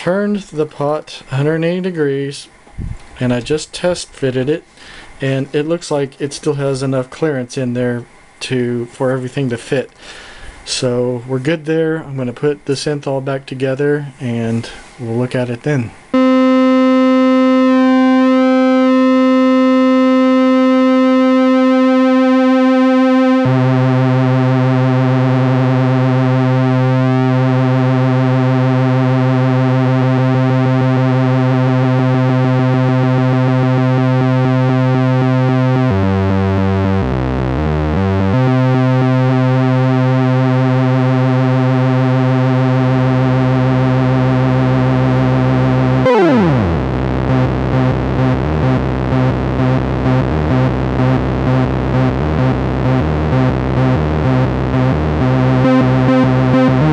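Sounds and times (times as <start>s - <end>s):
buzzy synthesizer note: 16.1s - 56.9s.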